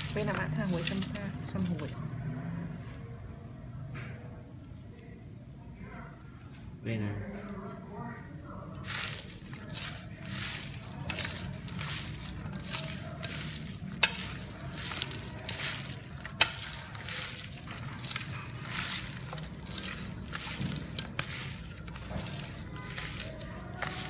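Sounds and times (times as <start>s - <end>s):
wet squishing of hands mixing meat: 0.0s - 3.1s, 8.7s - 24.0s.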